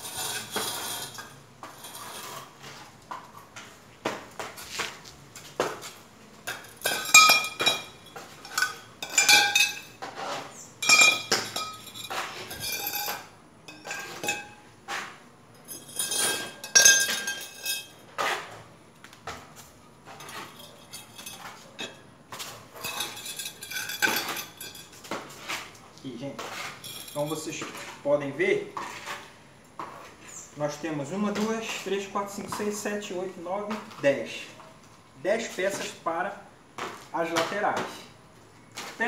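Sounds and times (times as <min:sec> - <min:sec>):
metal tubes clinking on concrete: 0:00.0 - 0:03.7, 0:06.4 - 0:14.7, 0:15.5 - 0:18.0, 0:20.0 - 0:25.4, 0:26.4 - 0:28.3.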